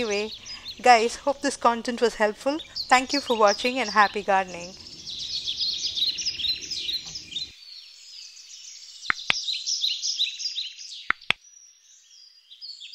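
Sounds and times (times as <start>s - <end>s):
songbirds chirping: 0.0s - 12.9s
sharp clicks: 9.1s - 9.4s, 11.1s - 11.4s.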